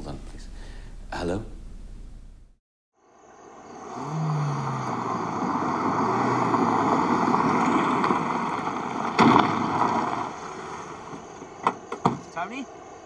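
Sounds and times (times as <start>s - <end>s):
car engine running low: 3.8s - 12.0s
tyres crunching on gravel: 4.9s - 12.5s.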